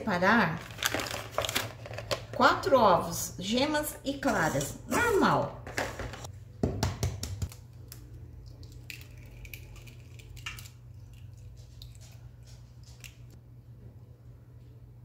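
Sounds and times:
eggshells cracking: 0:07.5 - 0:12.0.

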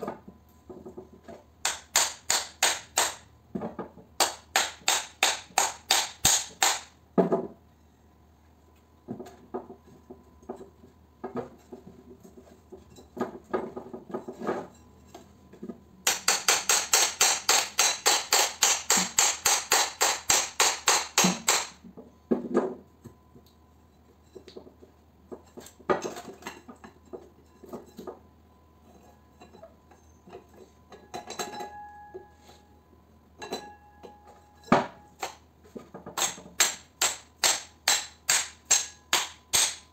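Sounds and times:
hammer tapping on steel: 0:01.6 - 0:03.2, 0:04.2 - 0:06.9, 0:36.2 - 0:39.9.

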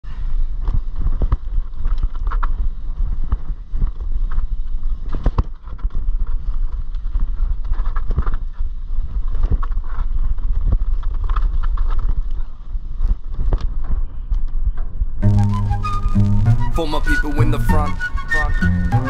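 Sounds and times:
wind rumble on microphone: 0:00.0 - 0:16.8
bike tyres crunching on dirt: 0:00.0 - 0:19.0
bike knocks and rattles: 0:00.1 - 0:15.2.

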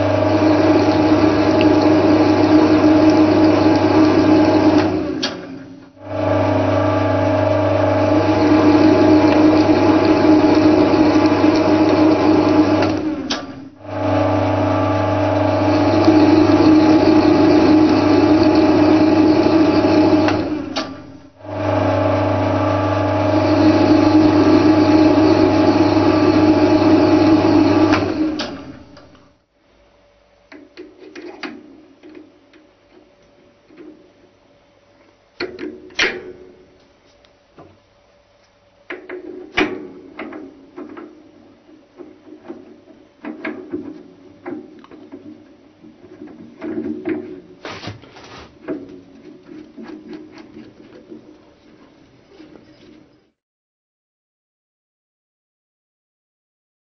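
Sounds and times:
lathe motor humming: 0:00.0 - 0:05.2, 0:06.0 - 0:29.1
tool cutting metal thread: 0:15.4 - 0:21.0.

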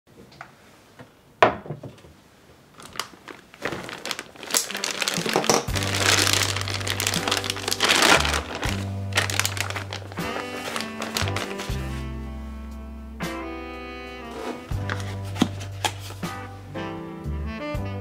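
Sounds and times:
plastic bag crinkling and rustling: 0:02.7 - 0:12.0, 0:14.3 - 0:16.2
soft piano music: 0:04.1 - 0:18.0.

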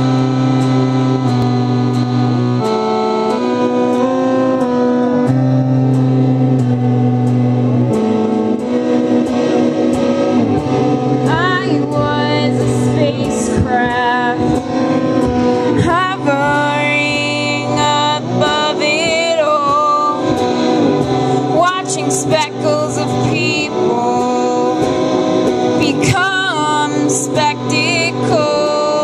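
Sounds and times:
light ticking beat: 0:00.0 - 0:28.9
electric guitar: 0:00.0 - 0:29.0
keyboard: 0:00.0 - 0:29.0
woman singing: 0:10.8 - 0:29.0.

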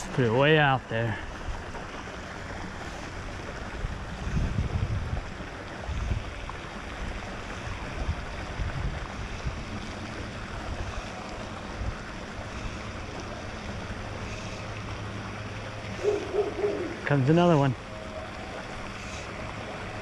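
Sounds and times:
wind buffeting microphone: 0:02.6 - 0:14.2.

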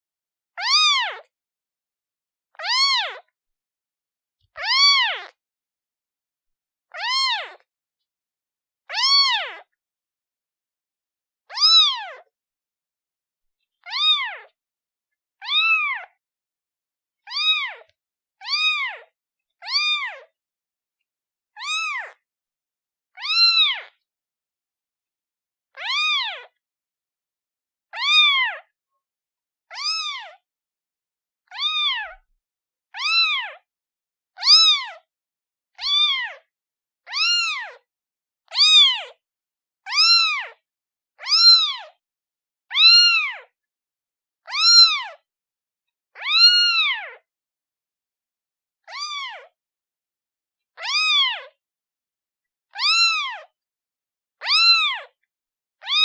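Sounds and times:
kitten meowing: 0:00.6 - 0:01.3, 0:02.6 - 0:03.2, 0:04.6 - 0:05.4, 0:06.9 - 0:07.7, 0:08.9 - 0:09.7, 0:11.5 - 0:12.3, 0:13.8 - 0:14.5, 0:15.4 - 0:16.2, 0:17.3 - 0:20.3, 0:21.6 - 0:22.2, 0:23.2 - 0:23.9, 0:25.8 - 0:26.6, 0:27.9 - 0:28.7, 0:29.7 - 0:30.4, 0:31.5 - 0:32.2, 0:33.0 - 0:33.6, 0:34.4 - 0:35.1, 0:35.8 - 0:37.8, 0:38.5 - 0:39.2, 0:39.9 - 0:40.6, 0:41.2 - 0:42.0, 0:42.7 - 0:43.5, 0:44.4 - 0:45.2, 0:46.2 - 0:47.2, 0:48.8 - 0:49.6, 0:50.8 - 0:51.6, 0:52.7 - 0:53.5, 0:54.4 - 0:55.2, 0:55.8 - 0:56.0.

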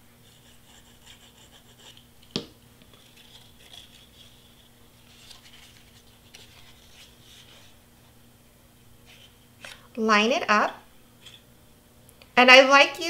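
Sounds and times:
cardstock rustling and crinkling: 0:02.8 - 0:07.8.

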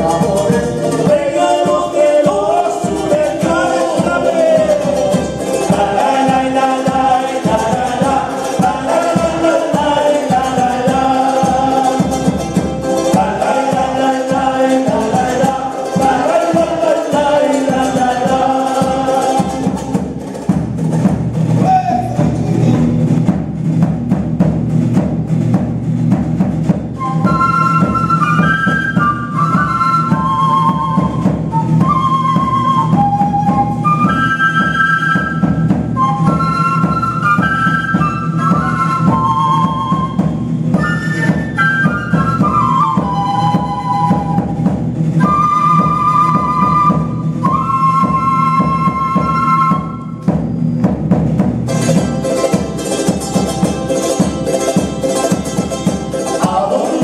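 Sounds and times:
acoustic guitars: 0:00.0 - 0:57.0
hand percussion and drum: 0:00.0 - 0:57.0
flute melody: 0:27.0 - 0:50.8
small strummed string instrument: 0:51.7 - 0:57.0.

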